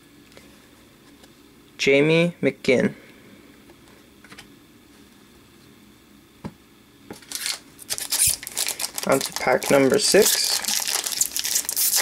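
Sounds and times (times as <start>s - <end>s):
trading cards handled: 7.1s - 12.0s
wrapper crinkling: 7.2s - 12.0s.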